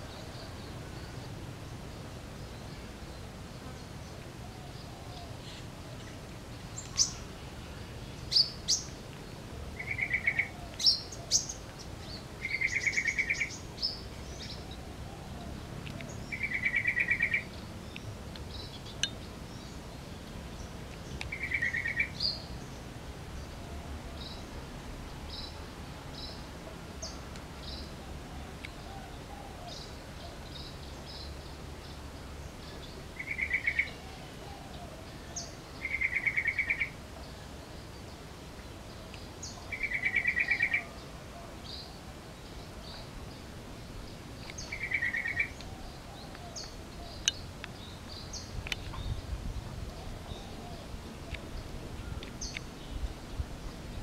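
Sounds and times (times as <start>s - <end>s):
bulbul trilled calls: 9.8s - 19.8s, 20.7s - 22.6s, 32.5s - 37.0s, 39.4s - 40.9s, 43.8s - 53.1s.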